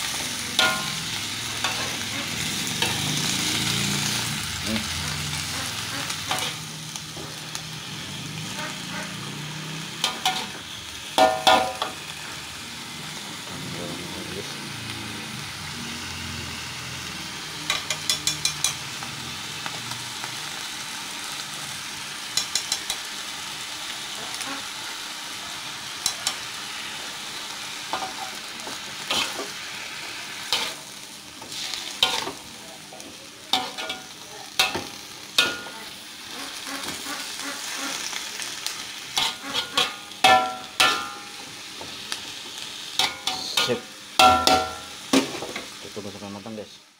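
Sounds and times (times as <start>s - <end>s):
cabbage sizzling in a wok: 0.0s - 46.9s
metal spatula scraping and tapping: 17.7s - 18.8s, 22.4s - 23.0s, 39.2s - 41.2s.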